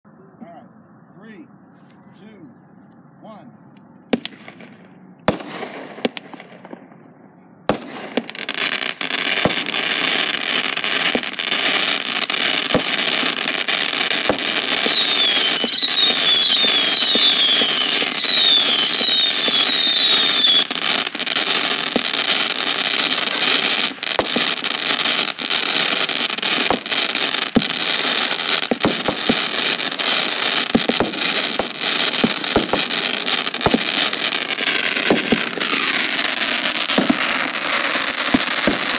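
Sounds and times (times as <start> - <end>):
fireworks popping and crackling: 4.1 - 6.9, 7.7 - 38.9
whistling fireworks falling in pitch: 7.7 - 38.9.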